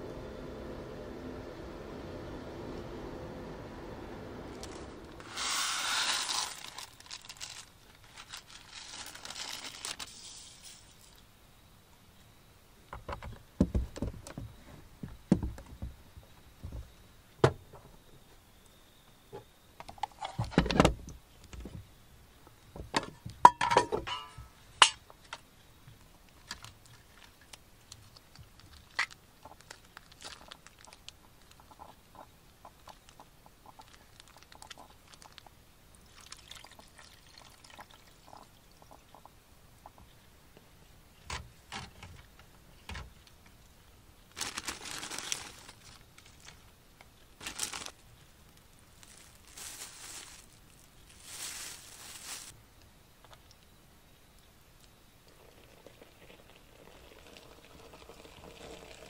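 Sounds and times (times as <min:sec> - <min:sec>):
plastic bag rustling: 0:04.6 - 0:10.8, 0:44.3 - 0:46.7, 0:47.4 - 0:48.2, 0:48.8 - 0:52.6.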